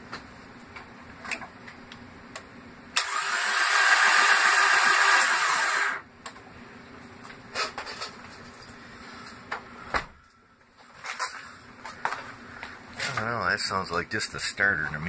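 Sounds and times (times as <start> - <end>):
starter motor cranking engine: 3.0 - 6.0.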